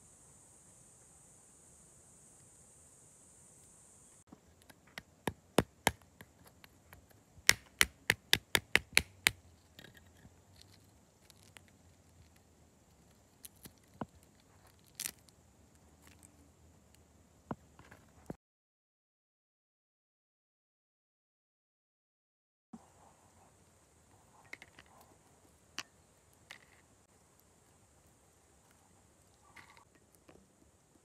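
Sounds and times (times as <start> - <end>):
cashew shells cracking: 4.5 - 15.4.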